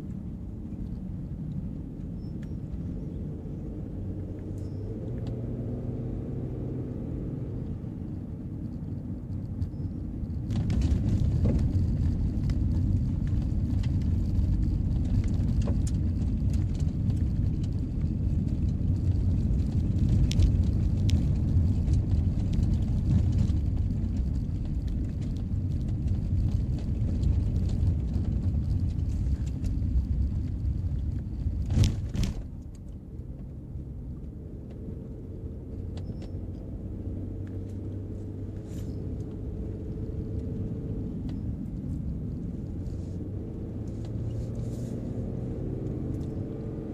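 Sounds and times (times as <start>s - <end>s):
gravel ticks and clicks: 0.0s - 5.7s, 7.6s - 46.9s
road and engine hum: 0.0s - 46.9s
tyres rumbling on gravel: 9.4s - 46.9s.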